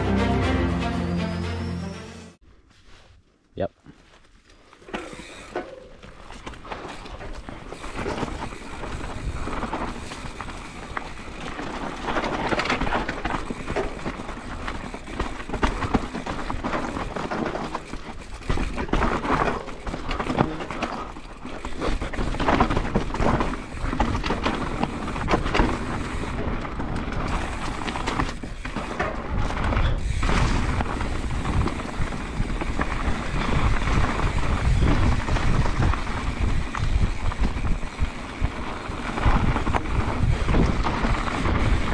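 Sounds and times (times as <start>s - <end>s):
bike rattling over bumps: 4.1s - 41.9s
wind rumble on microphone: 29.3s - 41.9s.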